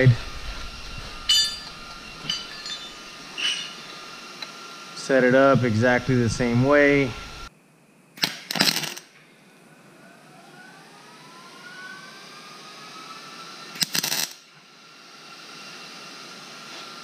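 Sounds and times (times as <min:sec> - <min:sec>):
faint rising whine: 0:00.0 - 0:08.1, 0:09.3 - 0:13.7
welding arc crackle: 0:08.2 - 0:09.2, 0:13.7 - 0:14.5.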